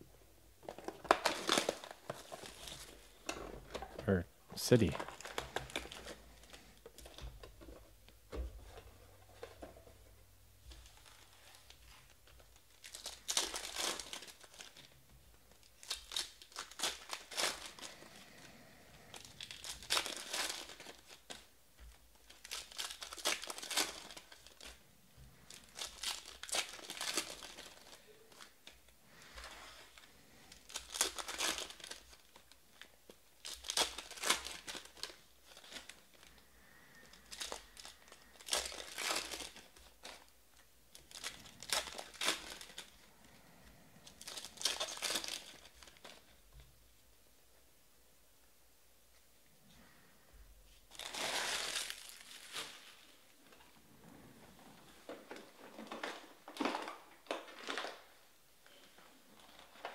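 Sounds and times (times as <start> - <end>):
card pack wrappers tearing: 0.6 - 3.0, 12.5 - 14.9, 15.6 - 21.5, 22.2 - 24.8, 25.4 - 28.6, 30.4 - 40.3, 40.9 - 43.0, 44.1 - 46.3, 50.9 - 53.2.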